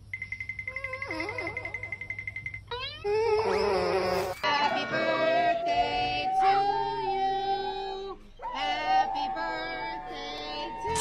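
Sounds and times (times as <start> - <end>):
people singing: 4.4 - 11.0
dog howling: 4.7 - 11.0.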